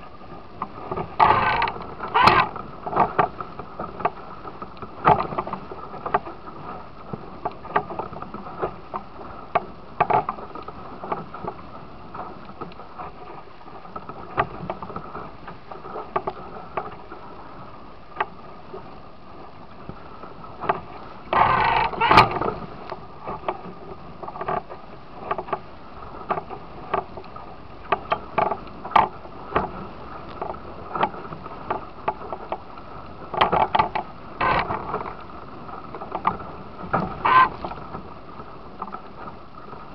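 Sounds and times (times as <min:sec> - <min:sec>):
rushing water: 0:00.0 - 0:39.9
waves slapping boat hull: 0:00.0 - 0:39.9
wind: 0:00.0 - 0:39.9.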